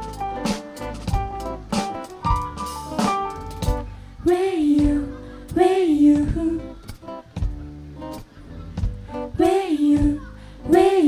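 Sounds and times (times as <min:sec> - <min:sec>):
sliding melody line: 0:00.0 - 0:03.9
acoustic guitar: 0:00.0 - 0:11.0
drum kit and bass: 0:00.0 - 0:11.0.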